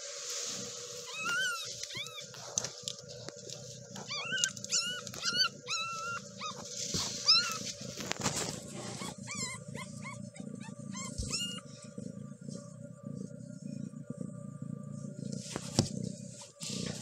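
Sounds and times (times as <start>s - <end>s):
kittens mewing: 1.1s - 2.4s, 4.0s - 7.8s, 8.7s - 11.7s.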